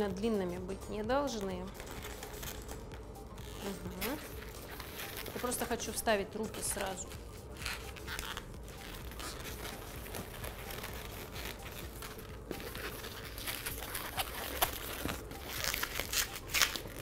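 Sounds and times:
balloons rubbing and crinkling: 1.0s - 17.0s.

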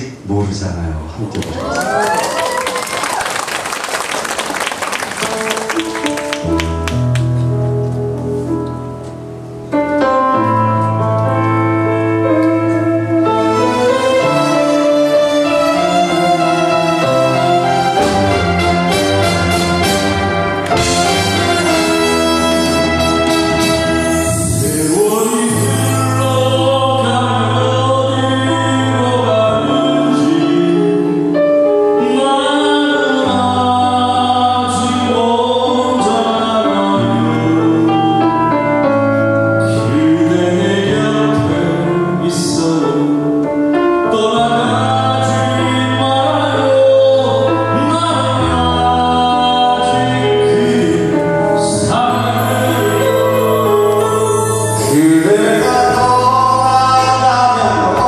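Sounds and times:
live band playing pop song: 10.6s - 28.1s, 28.8s - 58.0s
low bass notes: 17.4s - 29.9s
man singing into microphone: 24.0s - 58.0s.

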